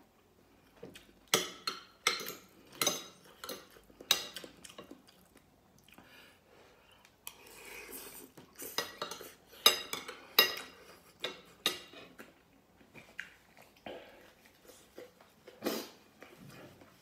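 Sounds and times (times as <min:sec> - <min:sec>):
cutlery clinking on ceramic plate: 0:01.3 - 0:04.4.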